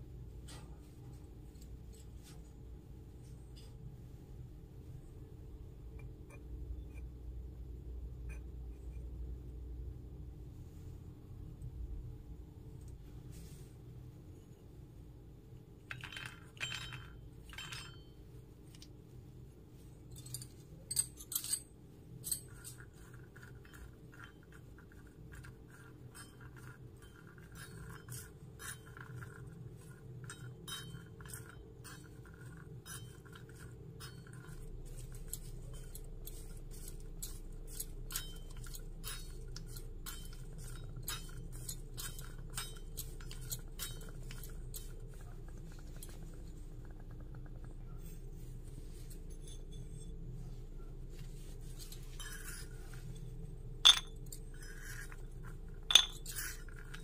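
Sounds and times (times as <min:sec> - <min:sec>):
nuts and spoon clinking in pan: 0:22.2 - 0:45.4, 0:53.8 - 0:57.0.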